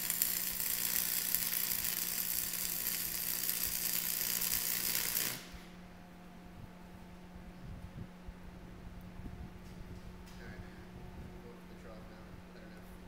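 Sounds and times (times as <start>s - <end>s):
welding arc crackling and hissing: 0.0s - 5.8s
steady low hum: 0.0s - 13.0s.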